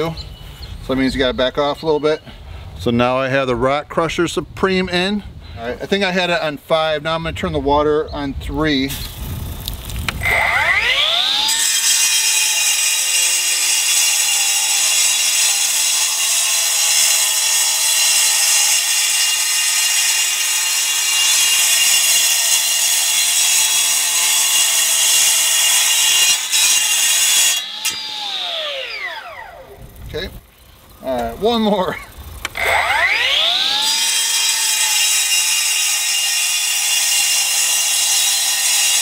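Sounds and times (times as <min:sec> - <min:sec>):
cutoff saw cutting concrete: 0:10.2 - 0:30.3, 0:31.0 - 0:39.0.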